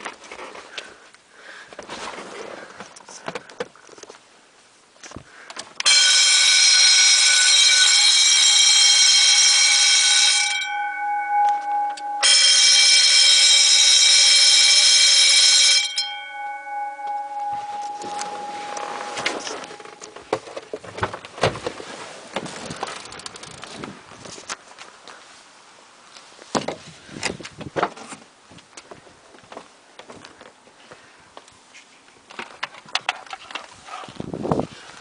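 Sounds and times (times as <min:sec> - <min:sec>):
fire alarm bells ringing: 0:05.8 - 0:20.1.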